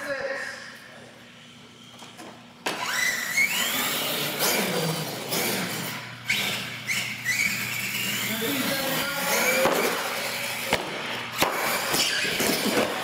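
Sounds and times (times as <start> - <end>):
electric motor whining: 2.7 - 10.7.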